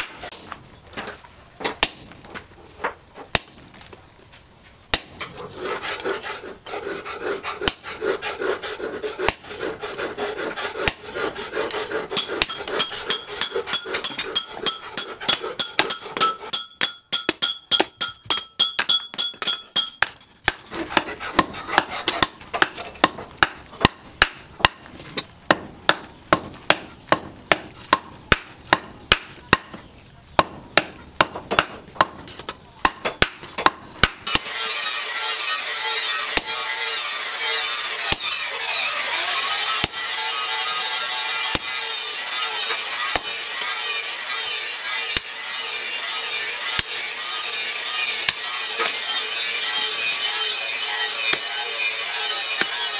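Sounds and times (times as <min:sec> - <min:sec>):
hammer striking hot metal: 0:00.0 - 0:00.6, 0:03.3 - 0:03.8, 0:04.9 - 0:05.3, 0:07.6 - 0:07.9, 0:09.2 - 0:09.7, 0:10.8 - 0:11.1, 0:11.7 - 0:29.8, 0:30.4 - 0:38.3, 0:39.3 - 0:52.9.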